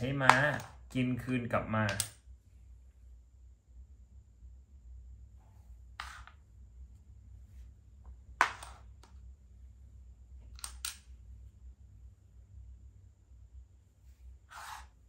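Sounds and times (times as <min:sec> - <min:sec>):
chess pieces clacking on board: 0:00.0 - 0:02.2, 0:06.0 - 0:06.4, 0:08.4 - 0:09.2, 0:10.5 - 0:11.1.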